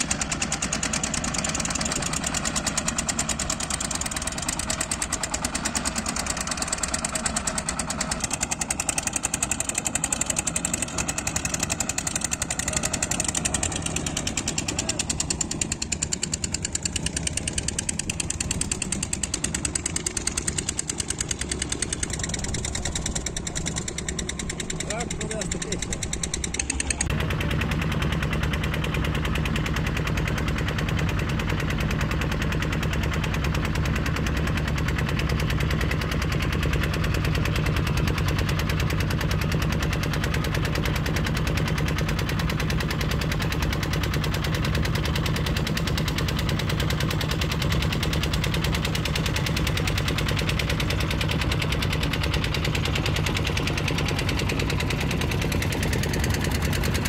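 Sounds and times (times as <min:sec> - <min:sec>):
diesel engine chugging: 0:00.0 - 0:57.0.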